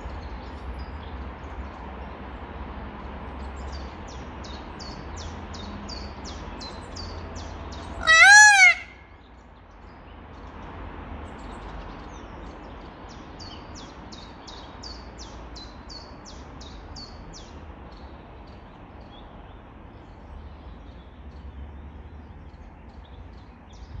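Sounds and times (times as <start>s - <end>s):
loud rising-and-falling bird call: 7.9s - 9.1s
high downward-sweeping bird chirps: 8.0s - 9.0s.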